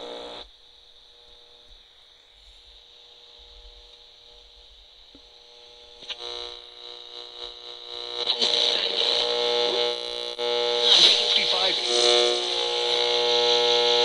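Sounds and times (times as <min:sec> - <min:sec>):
loud buzzy electronic drone: 0:05.4 - 0:14.0.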